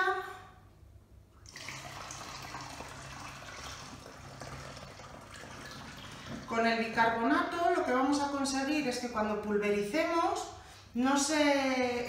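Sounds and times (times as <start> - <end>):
water pouring through plastic funnel: 1.4 - 6.6.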